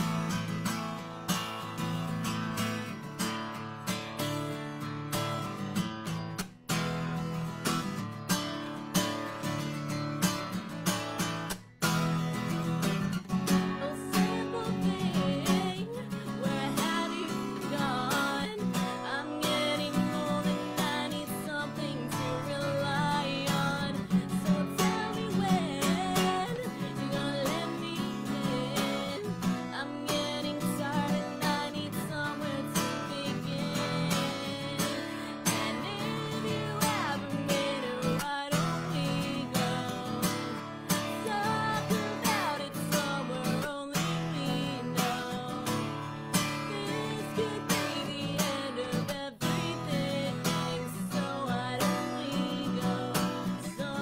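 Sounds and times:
acoustic guitar strumming: 0:00.0 - 0:54.0
woman singing: 0:12.4 - 0:54.0.

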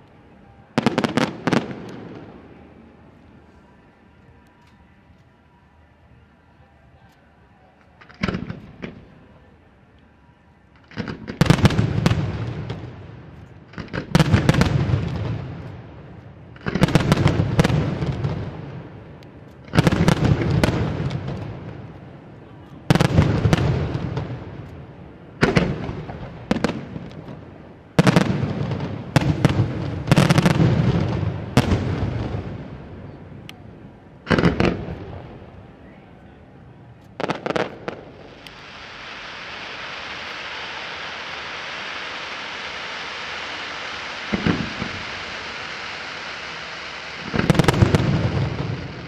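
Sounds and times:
small firework pops: 0:07.8 - 0:09.1, 0:10.8 - 0:18.4, 0:19.2 - 0:27.4, 0:37.0 - 0:49.0
firework shells bursting: 0:37.1 - 0:49.0.

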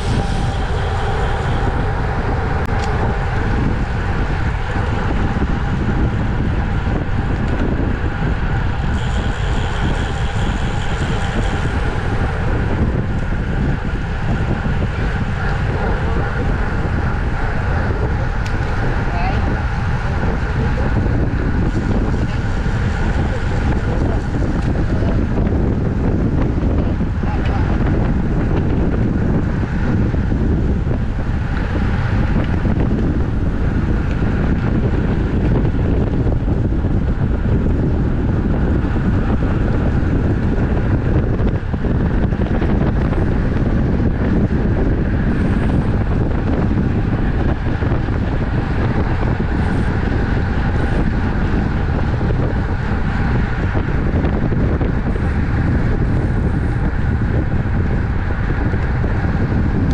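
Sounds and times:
bicycle road noise: 0:00.0 - 0:59.9
wind rushing over microphone: 0:00.0 - 0:59.9.

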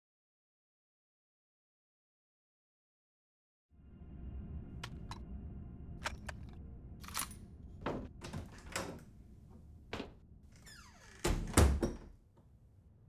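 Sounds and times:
steady low rumble: 0:03.7 - 0:10.6.

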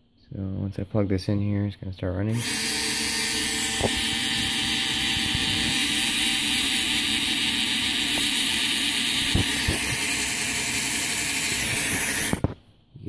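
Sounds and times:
small motors whirring: 0:02.3 - 0:12.6.

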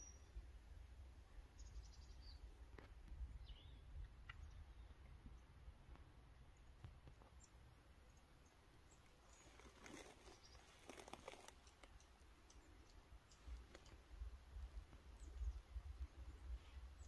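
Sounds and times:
faint clicks and crackling: 0:09.3 - 0:14.0.

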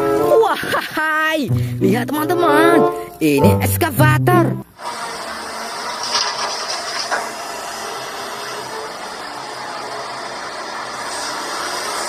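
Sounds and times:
excavator rumble and clatter: 0:05.9 - 0:12.0.

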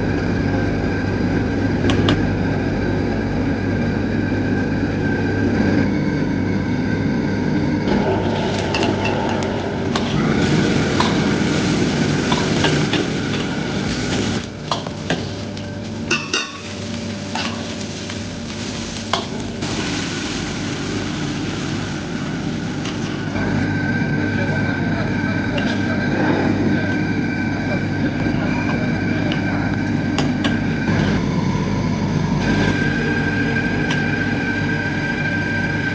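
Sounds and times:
gas burner rushing: 0:00.0 - 0:35.9
food sizzling: 0:08.0 - 0:23.4
ladle scraping in a wok: 0:08.1 - 0:23.3.

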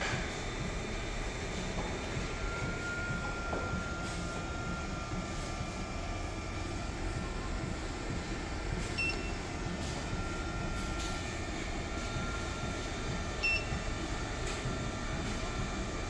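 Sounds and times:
cooling fans whirring: 0:00.0 - 0:16.0
short keypad beeps: 0:09.0 - 0:09.4, 0:13.4 - 0:13.8.

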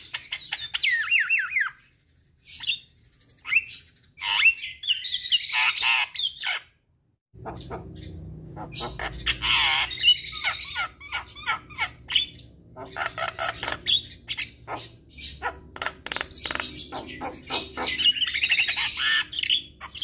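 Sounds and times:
myna whistling and squawking: 0:07.4 - 0:20.0.

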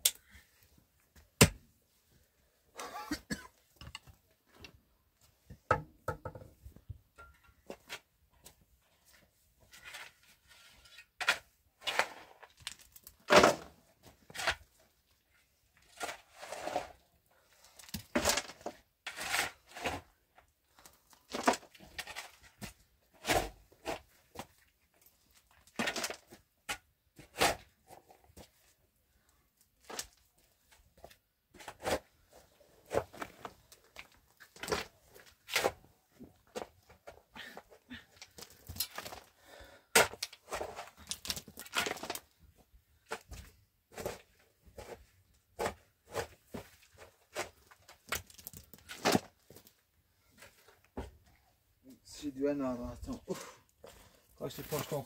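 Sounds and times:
shovel scraping stony earth: 0:09.7 - 0:12.5, 0:15.8 - 0:17.0, 0:18.1 - 0:20.1, 0:27.2 - 0:28.1, 0:39.9 - 0:42.3, 0:54.4 - 0:55.0
soil thrown into metal wheelbarrow: 0:10.9 - 0:14.6, 0:54.4 - 0:55.0.

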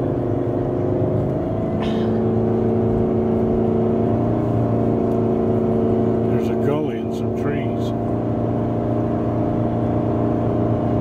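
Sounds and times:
vehicle engine and road hum: 0:00.0 - 0:11.0.

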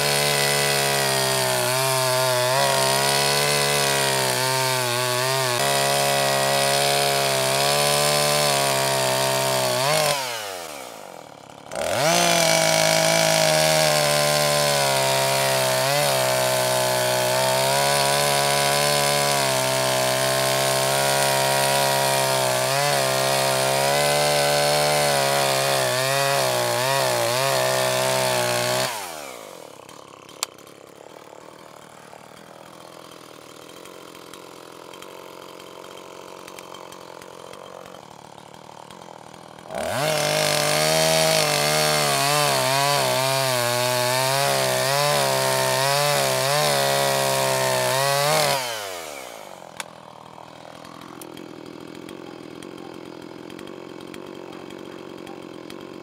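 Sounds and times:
chainsaw cutting log: 0:00.0 - 0:56.0.

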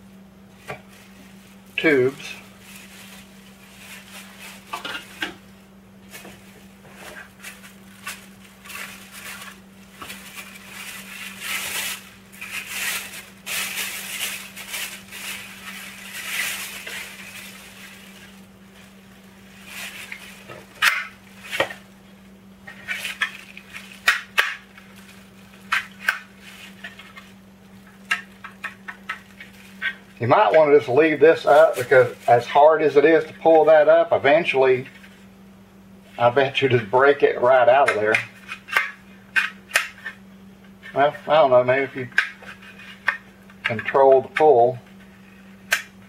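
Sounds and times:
plastic bag crinkling: 0:00.5 - 0:33.9.

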